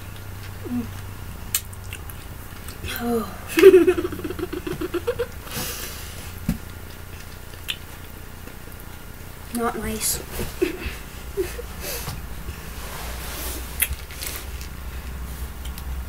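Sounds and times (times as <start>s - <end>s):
boy laughing vocal reaction: 3.0s - 5.5s, 10.6s - 12.1s.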